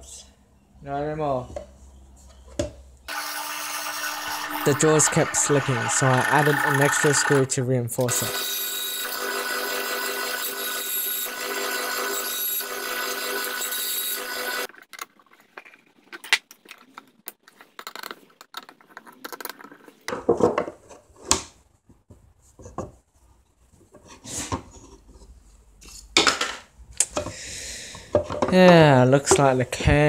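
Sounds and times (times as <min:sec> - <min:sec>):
bandsaw whining: 0:03.1 - 0:07.5, 0:08.1 - 0:14.7.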